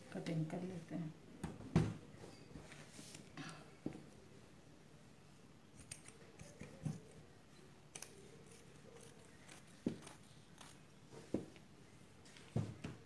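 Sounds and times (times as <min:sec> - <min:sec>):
scissors snipping fabric: 0:07.9 - 0:10.8.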